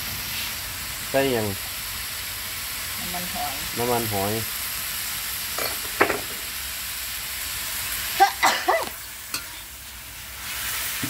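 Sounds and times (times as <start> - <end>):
vegetables sizzling in a wok: 0.0 - 11.0
metal spatula scraping a wok: 9.2 - 9.7.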